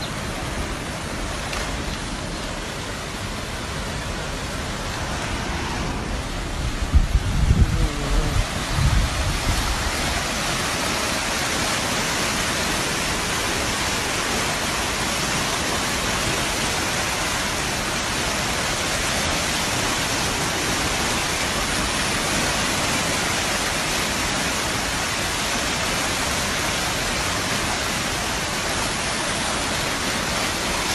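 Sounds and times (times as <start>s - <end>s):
floodwater rushing: 0.0s - 30.9s.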